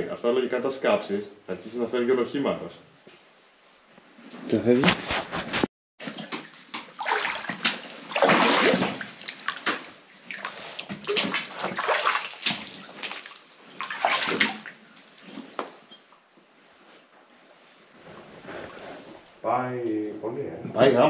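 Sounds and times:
person wading through water: 6.0 - 15.6.

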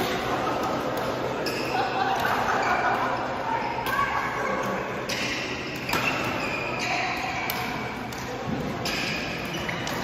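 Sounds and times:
sneakers squeaking on court floor: 0.8 - 2.8, 4.9 - 10.0
rackets hitting shuttlecock: 3.8 - 10.0.

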